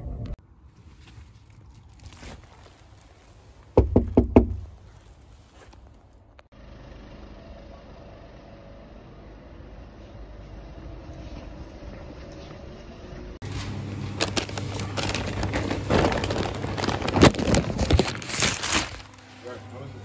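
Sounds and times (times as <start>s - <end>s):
knocking on door: 3.8s - 4.6s.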